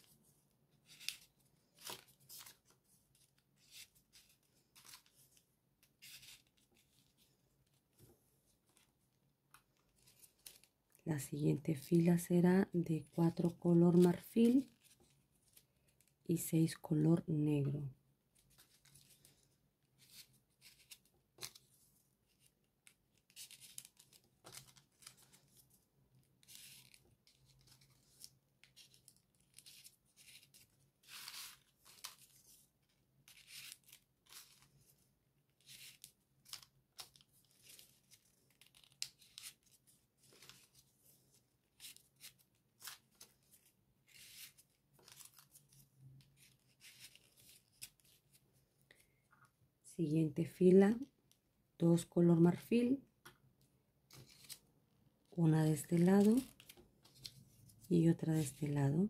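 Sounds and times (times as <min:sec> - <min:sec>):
paper rustling and clicking: 0:00.8 - 0:07.2, 0:09.5 - 0:10.7, 0:18.4 - 0:25.7, 0:35.6 - 0:40.9, 0:41.7 - 0:49.0, 0:54.1 - 0:54.6, 0:56.0 - 0:58.6.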